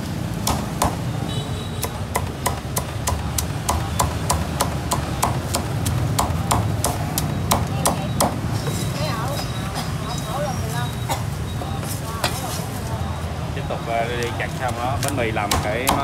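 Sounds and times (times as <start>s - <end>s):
cleaver chopping on wooden block: 0.4s - 1.0s, 1.8s - 8.4s, 15.0s - 16.0s.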